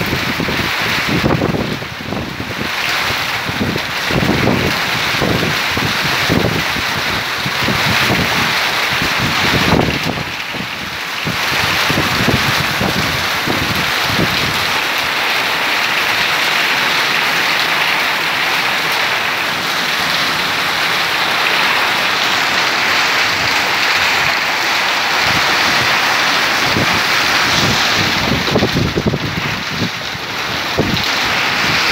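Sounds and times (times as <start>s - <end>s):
wind buffeting microphone: 0.0s - 14.7s, 25.1s - 31.9s
heavy rain: 0.0s - 31.9s.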